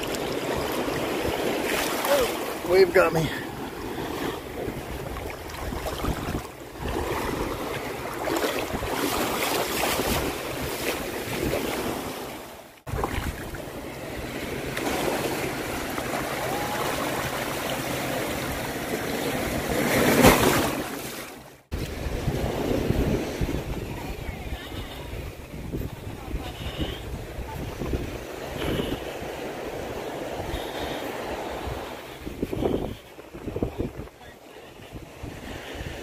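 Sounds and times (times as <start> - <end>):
small waves splashing: 0.0 - 36.0
wind buffeting microphone: 3.8 - 11.9, 21.7 - 36.0.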